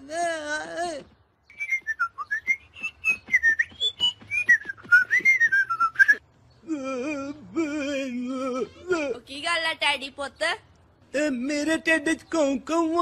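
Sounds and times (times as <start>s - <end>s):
person whistling a tune: 1.5s - 6.2s
low wavering held voice: 6.6s - 9.2s.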